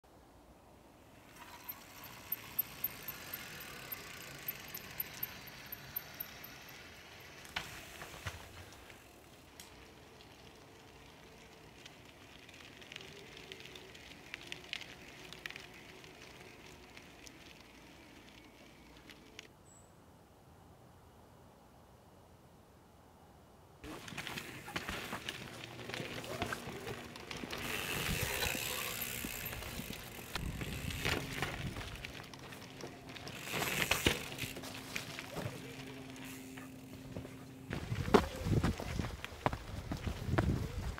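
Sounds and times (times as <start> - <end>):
bike rattling and clicking: 1.2 - 19.5, 23.8 - 40.9
tyres rolling over rock: 23.8 - 39.0.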